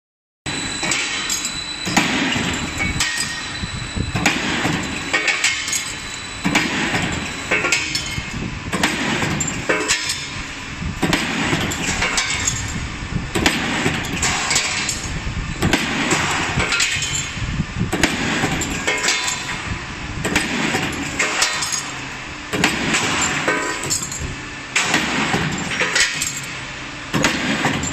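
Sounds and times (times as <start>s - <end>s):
machine running: 0.5s - 27.9s
metallic clanks and clinks: 0.8s - 10.4s, 11.0s - 12.9s, 13.8s - 15.2s, 16.1s - 17.4s, 18.4s - 19.6s, 20.3s - 22.0s, 22.6s - 26.6s, 27.2s - 27.9s.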